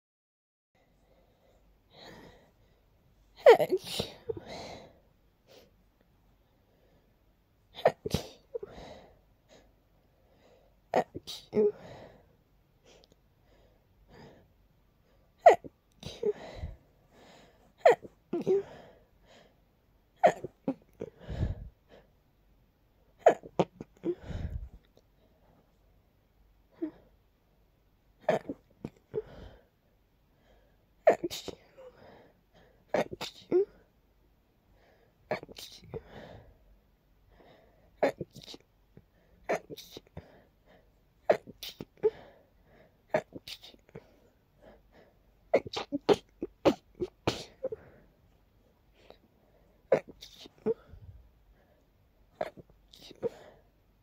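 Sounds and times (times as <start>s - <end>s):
person breathing: 0.8s - 2.9s, 16.2s - 17.8s, 21.0s - 22.2s, 24.0s - 25.6s, 29.1s - 30.9s, 35.9s - 36.7s, 37.3s - 38.0s, 48.9s - 49.9s
person sneezing: 3.4s - 4.4s, 7.8s - 8.7s, 11.0s - 11.8s, 31.1s - 31.8s, 39.5s - 40.2s, 41.3s - 42.1s, 43.2s - 43.9s, 45.6s - 47.9s, 49.9s - 51.0s.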